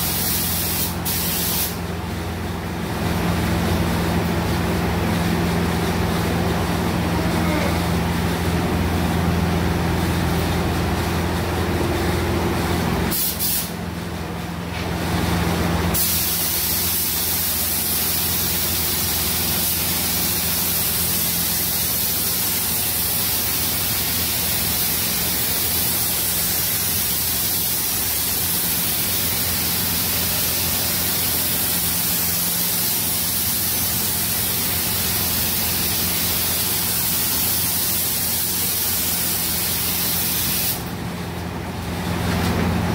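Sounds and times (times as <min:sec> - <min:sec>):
spray gun hissing: 0:00.0 - 0:01.8, 0:13.1 - 0:13.8, 0:15.9 - 0:40.9.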